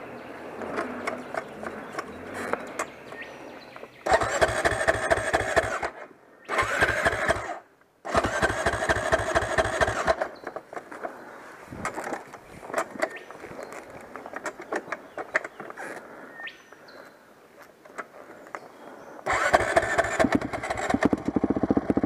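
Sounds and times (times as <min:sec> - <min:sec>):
dirt bike engine cranking: 0:00.5 - 0:02.9, 0:04.0 - 0:10.9, 0:19.3 - 0:22.0.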